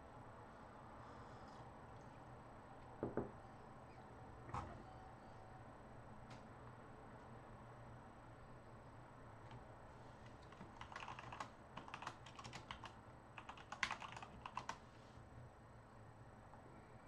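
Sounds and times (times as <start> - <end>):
typing on computer keyboard: 10.3 - 14.8.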